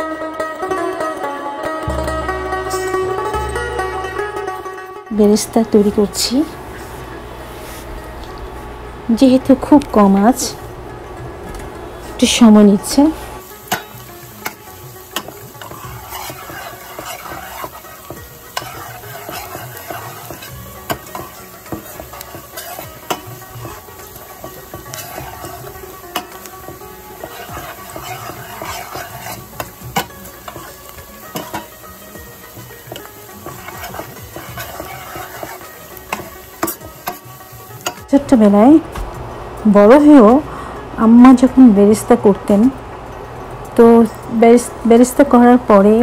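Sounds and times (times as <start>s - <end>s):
onions sizzling in oil: 5.2s - 7.9s, 12.0s - 42.8s
spatula tapping pan: 13.5s - 38.1s.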